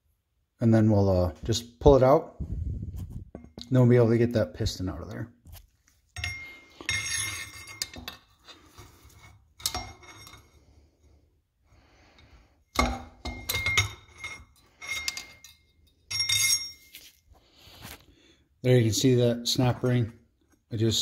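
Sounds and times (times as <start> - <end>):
screwdriver clinking on metal tube: 6.1 - 10.5, 12.7 - 17.2.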